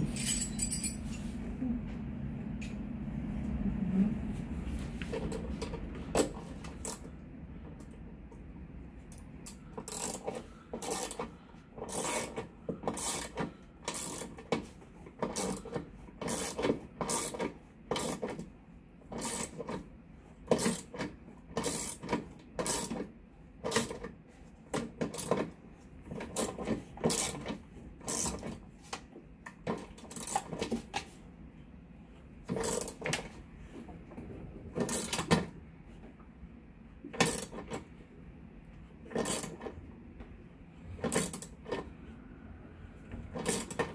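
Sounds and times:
ratchet wrench clicking: 0:09.8 - 0:11.2, 0:11.9 - 0:14.4, 0:16.2 - 0:17.4, 0:19.2 - 0:19.7, 0:39.2 - 0:39.6.

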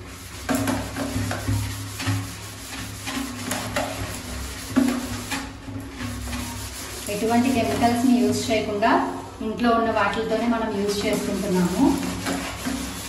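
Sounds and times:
scrubber rubbing wet plastic bucket: 0:00.0 - 0:09.4, 0:10.3 - 0:13.0.

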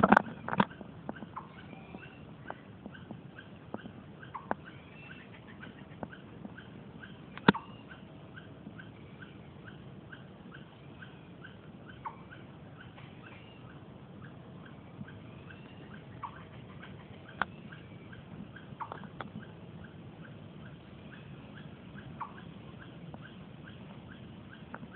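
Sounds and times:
small animal chirping: 0:00.0 - 0:24.9
sharp click: 0:07.4 - 0:07.6.

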